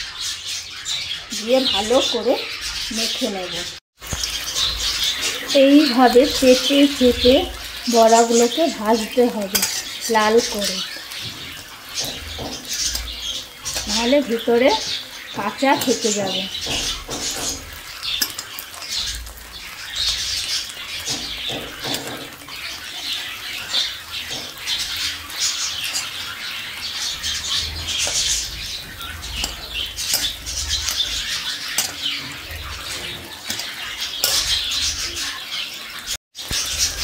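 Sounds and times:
fritters sizzling in hot oil: 0:00.0 - 0:37.0
metal spatula scraping wok: 0:01.4 - 0:37.0.

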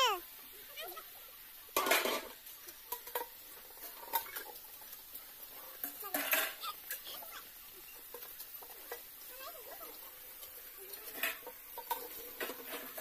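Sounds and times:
steel dishes clinking and scraping: 0:01.8 - 0:07.0, 0:07.8 - 0:09.3, 0:10.2 - 0:13.0.

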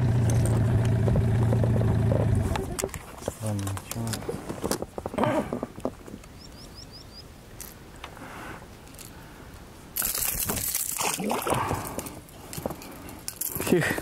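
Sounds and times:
light clicks and handling noise: 0:02.8 - 0:06.4
small bird chirping: 0:06.3 - 0:07.3.

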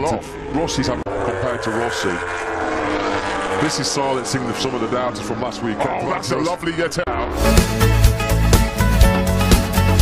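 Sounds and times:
background music with heavy bass: 0:07.4 - 0:10.0.

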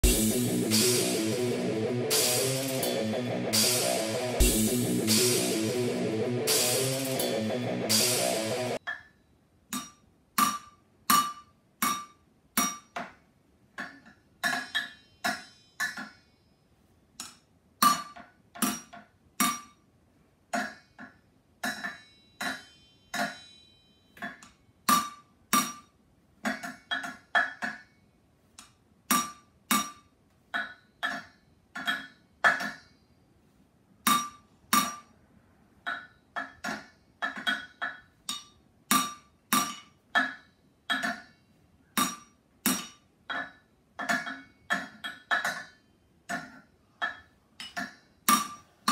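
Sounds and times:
drumsticks beating on metal pots: 0:13.8 - 0:16.2, 0:20.5 - 0:23.5, 0:24.2 - 0:27.9, 0:29.1 - 0:32.9, 0:34.1 - 0:35.1, 0:35.9 - 0:41.3, 0:41.9 - 0:48.9.

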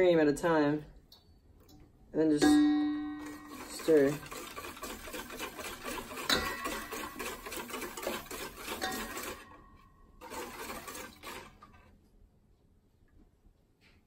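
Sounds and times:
whisk beating in metal bowl: 0:02.4 - 0:11.9.

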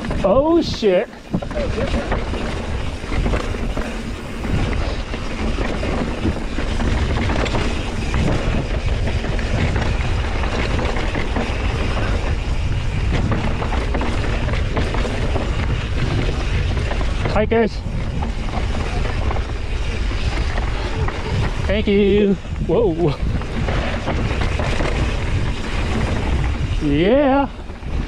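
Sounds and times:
bike rattling and knocking: 0:00.0 - 0:28.0
bike tyres rushing on dirt: 0:00.0 - 0:28.0
wind on microphone: 0:00.0 - 0:28.0.

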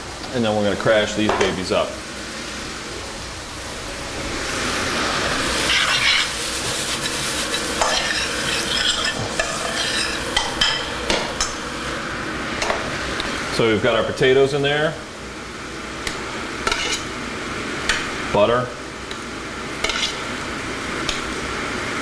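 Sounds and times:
sizzling hiss: 0:04.2 - 0:11.6.

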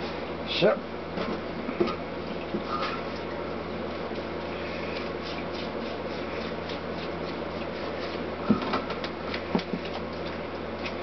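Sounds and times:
brush scrubbing metal: 0:02.7 - 0:08.4.

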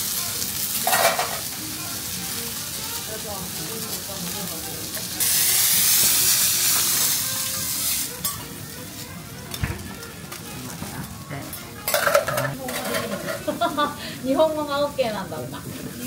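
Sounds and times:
food sizzling: 0:00.0 - 0:16.0.

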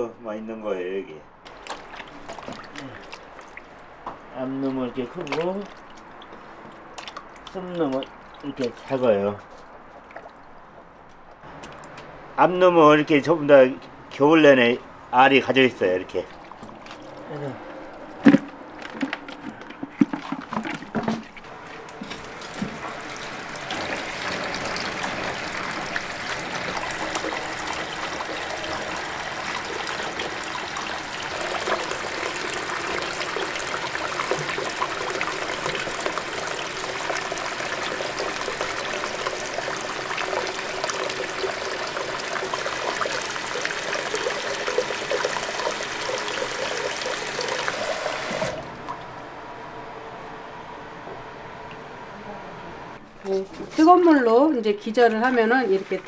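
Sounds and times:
water pouring into plastic bucket: 0:01.5 - 0:03.9, 0:04.5 - 0:09.1, 0:16.1 - 0:49.2.

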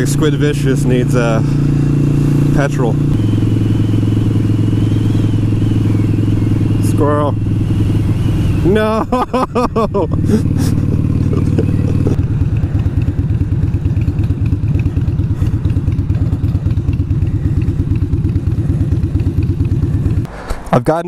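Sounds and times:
motorcycle engine running: 0:00.0 - 0:20.3.

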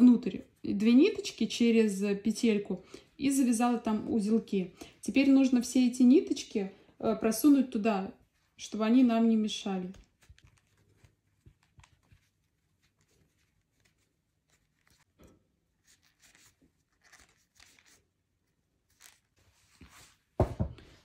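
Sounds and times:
faint rustles and scrapes: 0:09.8 - 0:21.0.

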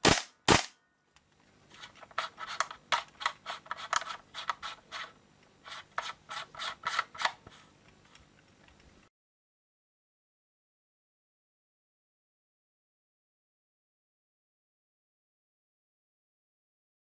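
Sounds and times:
metallic clicks and scrapes: 0:01.7 - 0:09.0.

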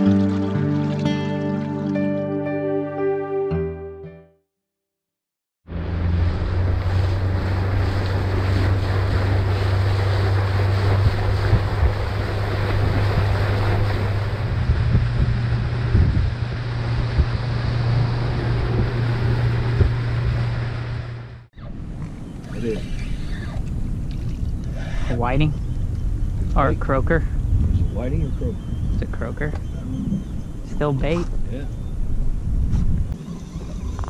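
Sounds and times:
water rushing past hull: 0:00.0 - 0:01.9, 0:05.7 - 0:27.6
outboard motor drone: 0:00.0 - 0:02.0, 0:05.7 - 0:31.2, 0:33.0 - 0:34.0
wind buffeting microphone: 0:05.9 - 0:34.0.

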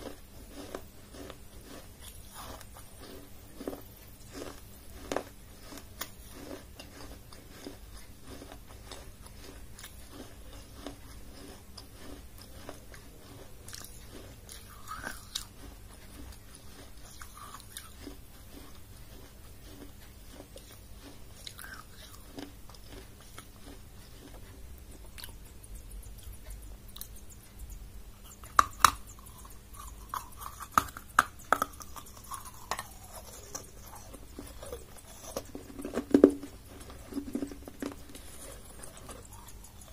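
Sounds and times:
crunchy chewing: 0:00.0 - 0:39.9
sharp cracks of biting: 0:25.2 - 0:39.9.

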